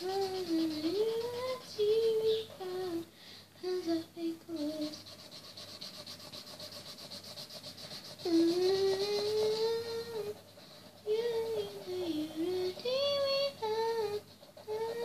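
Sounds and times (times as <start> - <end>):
marker rubbing on paper: 0.0 - 2.8, 4.8 - 15.0
girl humming: 0.0 - 5.0, 8.1 - 15.0.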